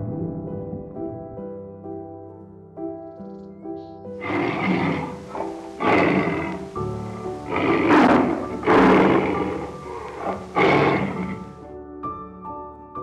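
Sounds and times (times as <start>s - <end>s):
background piano music: 0.0s - 13.0s
tiger growling: 4.2s - 11.6s.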